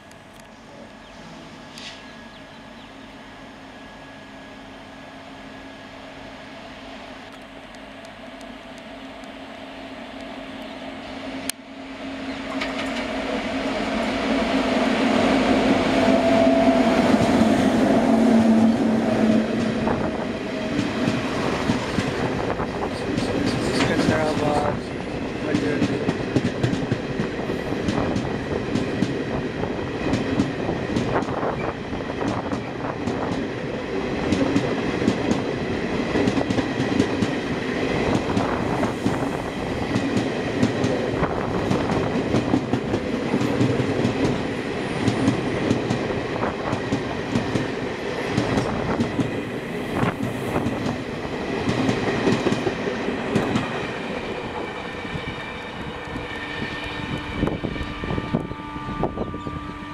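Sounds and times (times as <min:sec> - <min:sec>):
passing train coaches rushing: 0:00.0 - 0:59.9
train wheels clickety-clack: 0:12.5 - 0:13.2, 0:16.0 - 0:17.6, 0:18.4 - 0:33.5, 0:34.2 - 0:54.6.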